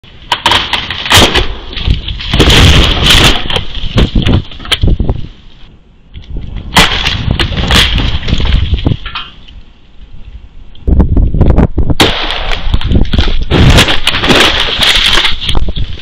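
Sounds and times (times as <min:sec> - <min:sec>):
rushing wind: 0:01.0 - 0:16.0
branches cracking: 0:12.0 - 0:16.0.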